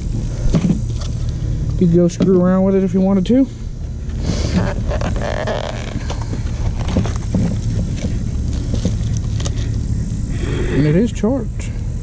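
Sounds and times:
steady low rumble: 0.0s - 12.0s
cardboard rustling: 4.1s - 9.8s
plastic wrap crinkling: 4.5s - 9.6s.

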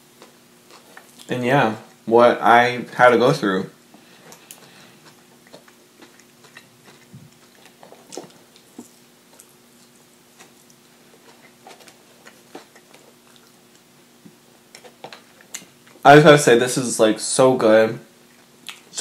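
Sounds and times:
person chewing crunchy food: 0.0s - 2.0s, 3.9s - 16.0s, 18.2s - 18.9s
faint steady hum: 0.0s - 19.0s.

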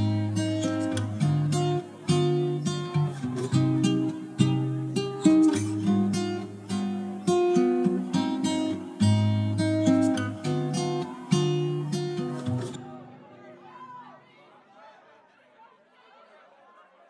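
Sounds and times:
acoustic guitar picking and strumming: 0.0s - 13.2s.

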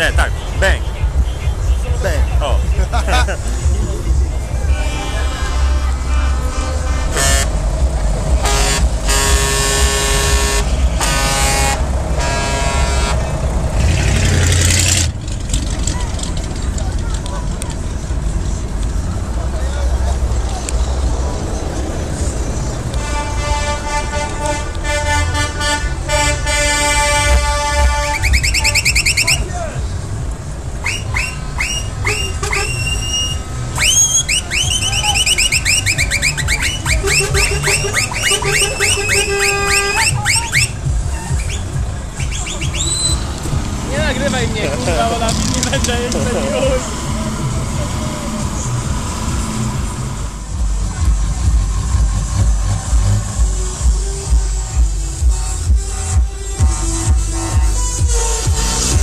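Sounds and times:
low engine rumble: 0.0s - 59.0s
truck air horn blasts: 4.6s - 14.0s, 22.9s - 29.4s, 30.8s - 41.5s, 53.8s - 59.0s.

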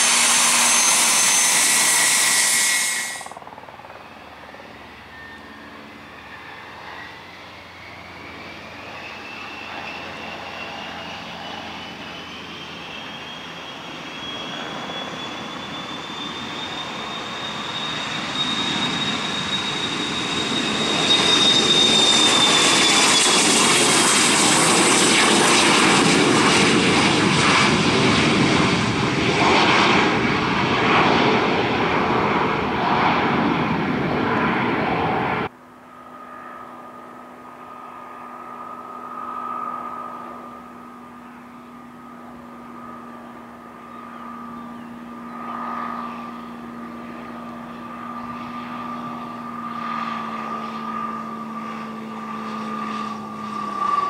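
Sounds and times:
jet taking off with high whine: 0.0s - 54.0s
propeller plane engine droning: 0.0s - 54.0s.

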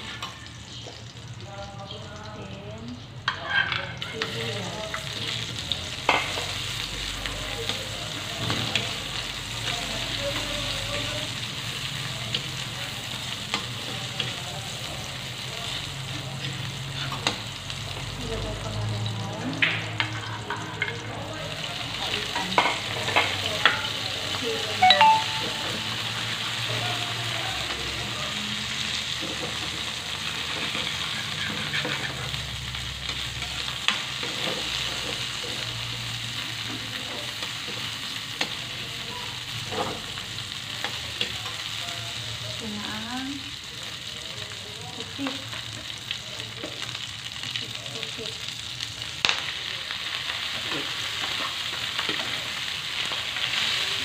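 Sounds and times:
vegetables sizzling in a wok: 0.0s - 54.0s
metal spatula scraping a pan: 3.3s - 4.4s, 30.3s - 32.5s.

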